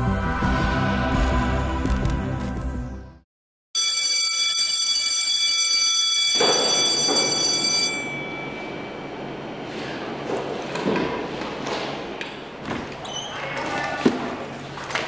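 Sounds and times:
high ringing alarm tone: 3.8 - 9.4.

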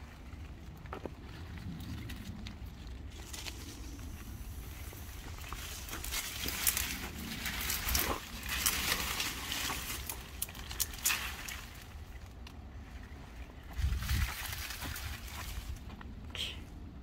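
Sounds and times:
leafy stalks dragged over mulch: 1.2 - 16.0
stems cracking: 4.7 - 12.7.

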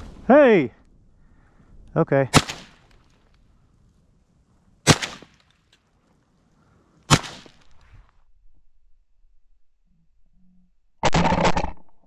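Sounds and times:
shotgun shots: 2.3 - 3.0, 4.8 - 5.5, 7.1 - 7.7.

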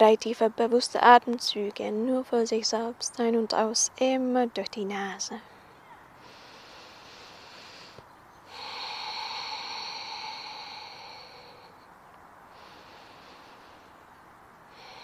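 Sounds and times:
deep breathing through nose: 5.5 - 15.0.

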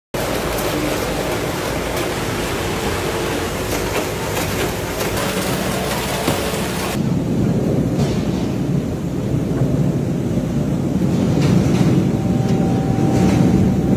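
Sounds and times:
machinery rattling and clicking: 0.2 - 7.0
potatoes pouring into steel bin: 0.2 - 7.0
faint machine hum: 0.2 - 13.9.

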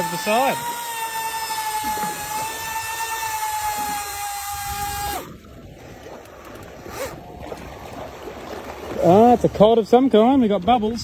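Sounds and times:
fishing reel motor whine: 0.0 - 5.6.

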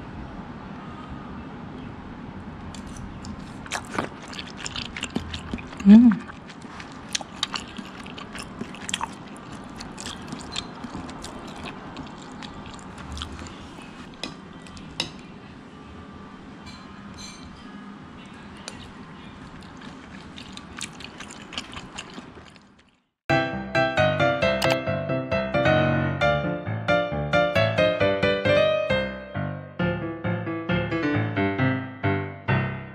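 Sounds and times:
piano music: 23.3 - 32.9.

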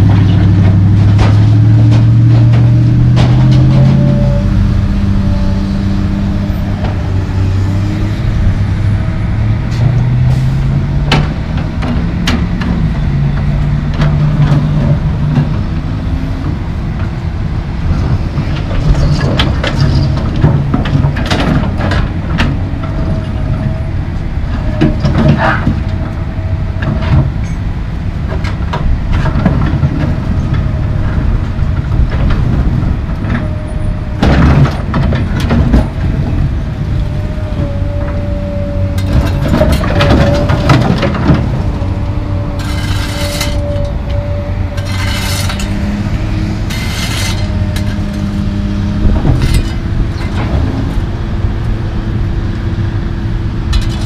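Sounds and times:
excavator diesel engine: 0.0 - 54.0.

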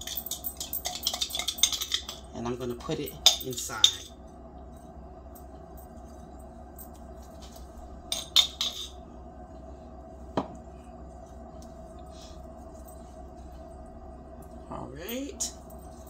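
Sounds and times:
metal spoon clinking glass jar: 0.0 - 4.1, 8.1 - 9.0
steady low hum: 0.0 - 16.0.

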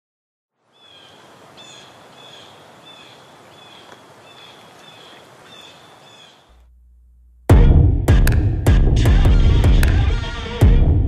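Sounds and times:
steady hiss: 0.7 - 6.5
bird chirping: 0.7 - 6.6.

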